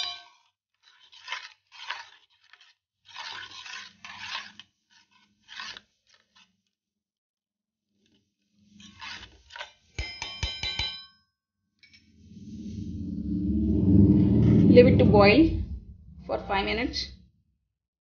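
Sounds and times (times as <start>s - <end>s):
metal spoon scraping pot: 0.0s - 6.5s, 8.6s - 10.2s
metallic clink: 10.0s - 11.2s.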